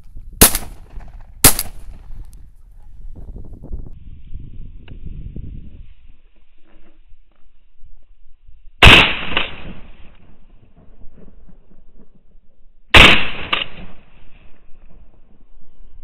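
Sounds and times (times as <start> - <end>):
shotgun shots: 0.4 - 2.0, 8.8 - 10.1, 13.0 - 14.1.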